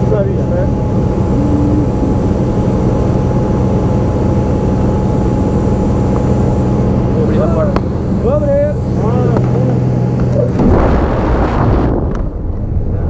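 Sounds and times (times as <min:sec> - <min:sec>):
low hum: 0:00.0 - 0:13.0
propeller plane engine drone: 0:00.0 - 0:13.0.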